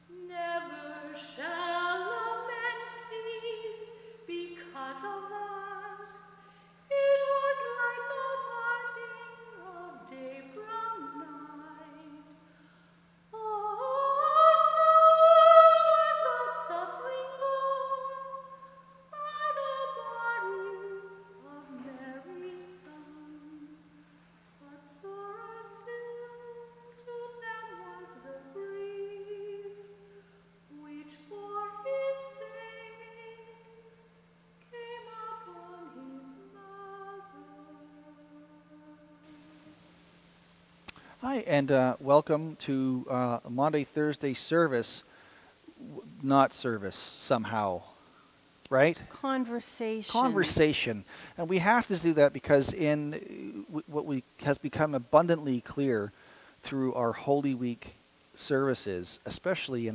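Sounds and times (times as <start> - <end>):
steady low hum: 0.0 - 59.9
woman singing: 0.1 - 6.3, 6.9 - 12.4, 13.3 - 24.0, 24.6 - 30.1, 30.7 - 33.9, 34.7 - 39.7, 49.2 - 50.5.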